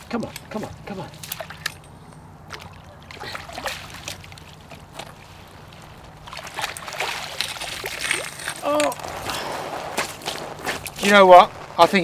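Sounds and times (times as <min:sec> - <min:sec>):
water splashing and sloshing: 0:00.0 - 0:11.0
water pouring and dripping off net: 0:02.5 - 0:09.4.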